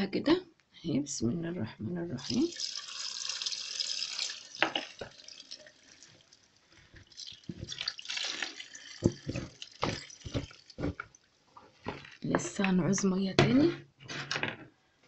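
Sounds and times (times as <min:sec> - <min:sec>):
brine pouring into glass jar: 0:02.2 - 0:12.2.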